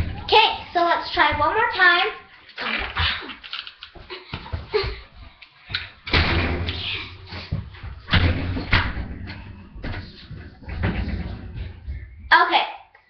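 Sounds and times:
thumps and bangs: 0.0s - 1.8s, 6.0s - 12.3s.

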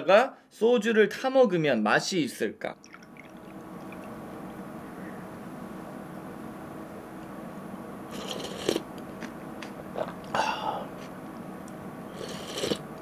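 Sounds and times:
slurping broth: 8.1s - 8.9s, 12.1s - 13.0s.

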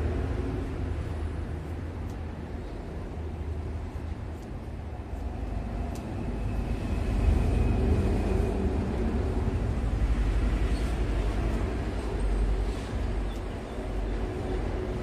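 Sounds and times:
low rumbling noise: 0.0s - 15.0s.

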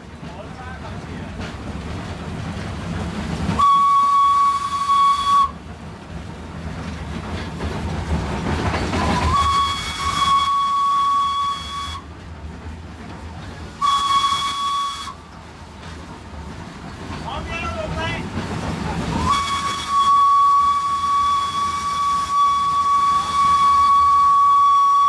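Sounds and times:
steam locomotive running noise: 0.0s - 25.0s
steam whistle blasts: 3.6s - 5.6s, 9.2s - 12.1s, 13.8s - 15.2s, 19.2s - 25.0s.

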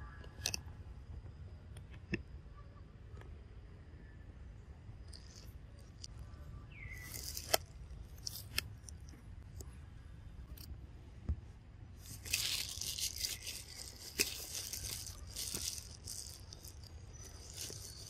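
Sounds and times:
dry leaves rustling and crunching: 6.7s - 8.5s, 12.0s - 18.0s.

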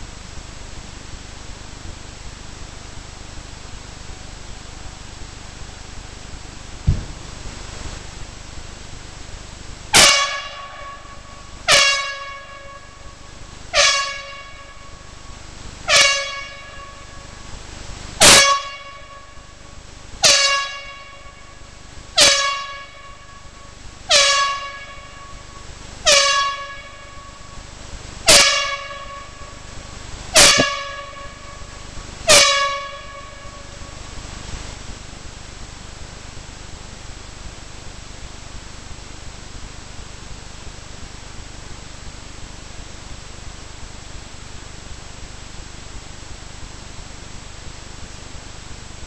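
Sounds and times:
warning horn blasts: 9.9s - 15.2s, 15.8s - 17.4s, 18.2s - 19.6s, 20.2s - 27.6s, 28.2s - 34.1s.

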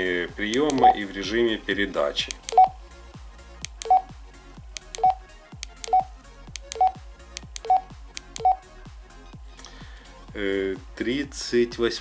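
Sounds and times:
radio keypad beeps: 3.8s - 4.1s.

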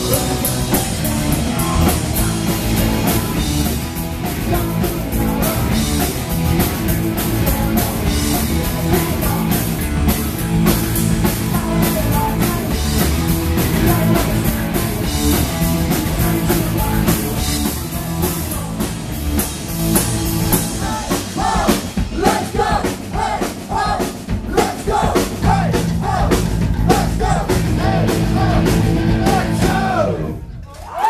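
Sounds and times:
punk rock band playing: 0.0s - 30.7s
shouted vocals: 20.7s - 31.0s.

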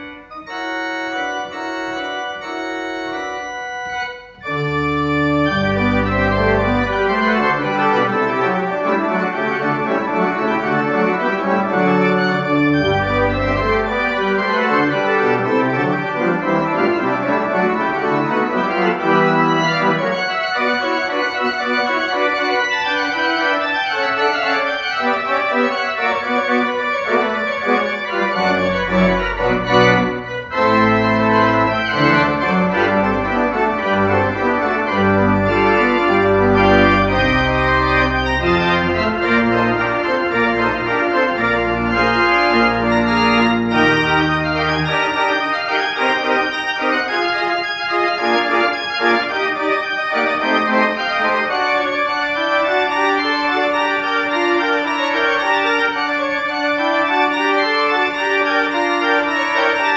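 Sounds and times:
deep organ pedal bass notes: 0.0s - 59.9s
pipe organ sustained chords: 0.0s - 59.9s.

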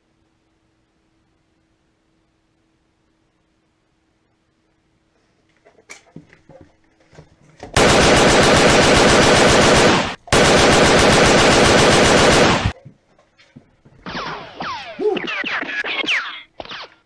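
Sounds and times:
automatic gunfire: 7.8s - 12.8s.

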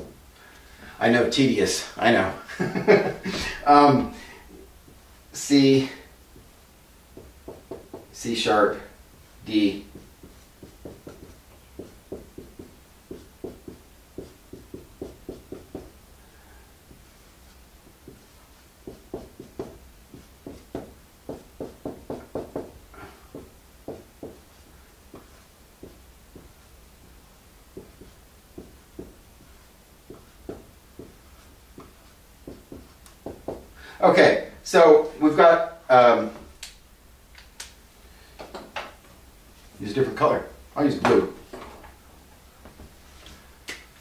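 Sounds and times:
marker writing on whiteboard: 7.1s - 16.0s, 16.8s - 33.7s.

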